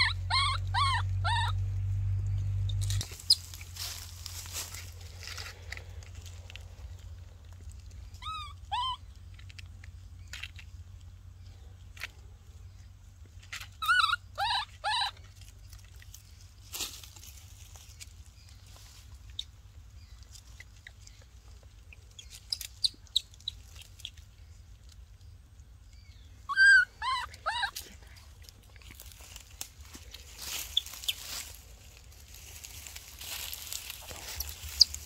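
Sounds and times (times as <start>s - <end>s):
baby monkey squealing: 0.0s - 1.6s, 3.2s - 3.6s, 8.1s - 9.4s, 13.6s - 15.3s, 26.5s - 28.0s.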